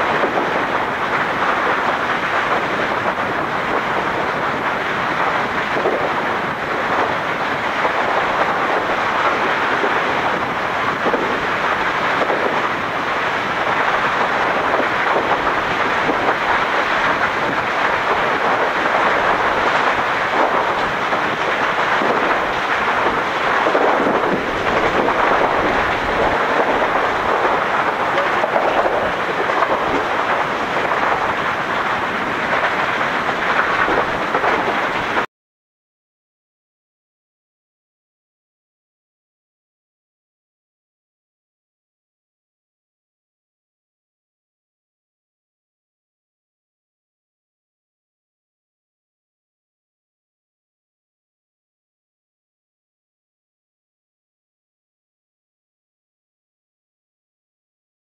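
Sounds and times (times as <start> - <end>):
volcano roaring: 0.0 - 35.3.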